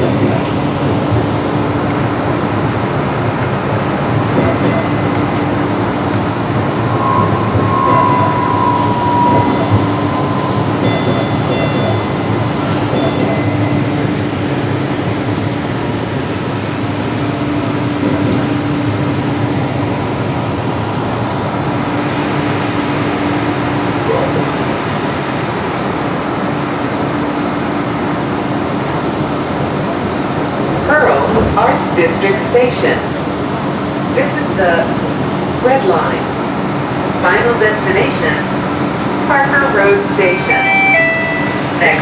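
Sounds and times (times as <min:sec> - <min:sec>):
train rumble and hum: 0:00.0 - 0:42.0
high wheel squeal: 0:06.7 - 0:11.6.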